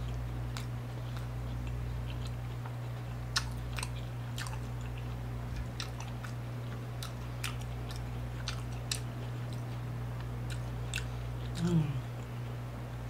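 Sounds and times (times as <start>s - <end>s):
wet chewing mouth clicks: 0.0s - 6.4s
steady low hum: 0.0s - 13.0s.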